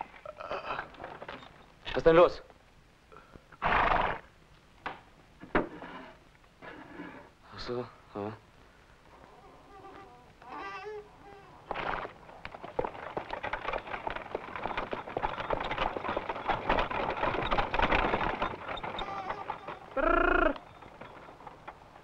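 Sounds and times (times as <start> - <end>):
clatter of hooves and cart wheels: 0.0 - 2.4, 11.6 - 22.0
short pitched calls: 19.0 - 20.7.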